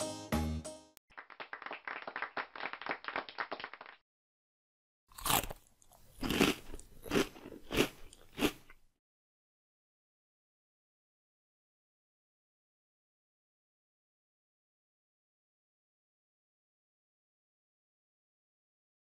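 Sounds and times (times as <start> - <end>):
cartoon cabbage crunching: 5.1 - 8.9.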